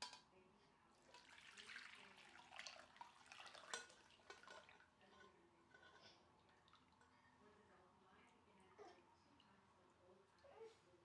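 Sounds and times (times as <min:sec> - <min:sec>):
liquid pouring through a strainer: 0:01.1 - 0:04.9.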